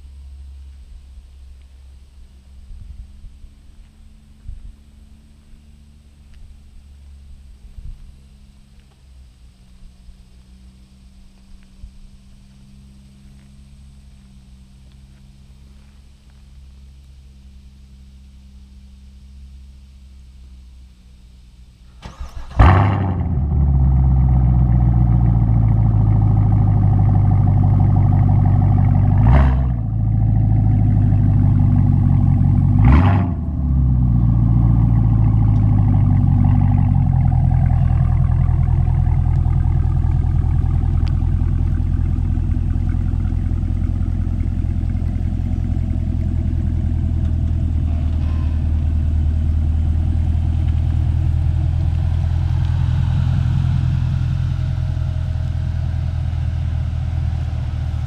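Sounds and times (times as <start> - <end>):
car engine idling: 0.0 - 58.0
engine throttle blips: 0.0 - 58.0
car engine flare: 21.9 - 58.0.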